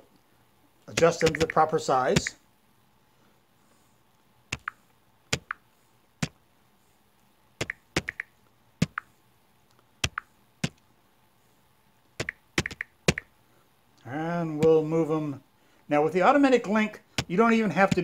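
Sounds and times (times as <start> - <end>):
taps on a touchscreen: 1.0 - 1.6, 4.6 - 5.6, 7.6 - 9.1, 10.0 - 10.8, 12.2 - 13.3.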